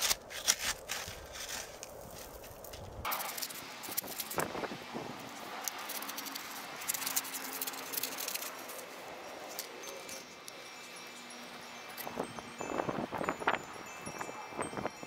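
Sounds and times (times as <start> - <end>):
trowel scraping through gravel: 0.0 - 4.7, 5.4 - 8.9.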